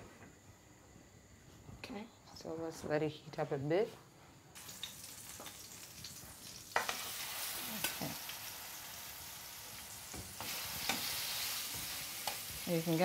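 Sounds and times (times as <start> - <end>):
meat sizzling in hot oil: 4.6 - 13.0.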